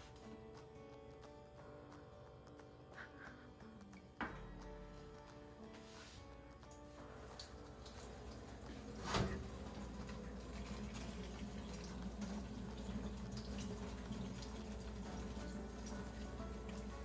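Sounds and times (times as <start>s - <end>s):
water splash: 7.8s - 14.6s.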